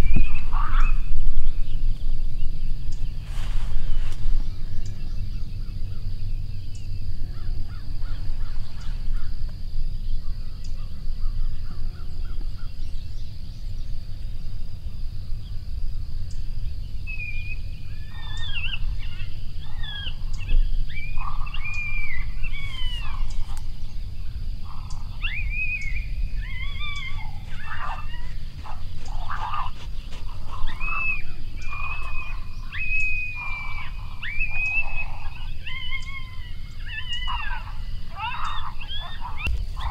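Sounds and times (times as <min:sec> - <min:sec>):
coyote yips and howls: 0:00.0 - 0:01.2, 0:17.1 - 0:39.9
steady low rumble: 0:00.0 - 0:36.8, 0:39.2 - 0:39.9.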